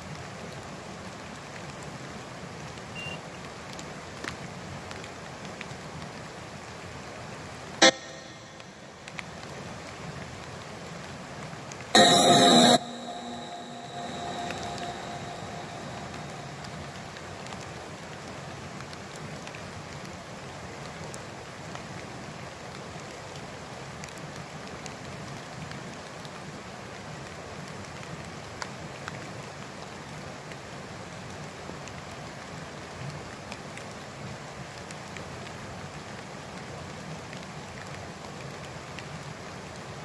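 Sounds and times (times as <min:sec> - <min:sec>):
light steady rain: 0:00.0 - 0:12.2, 0:12.9 - 0:40.0
sharp ticks of drops: 0:07.8 - 0:09.4.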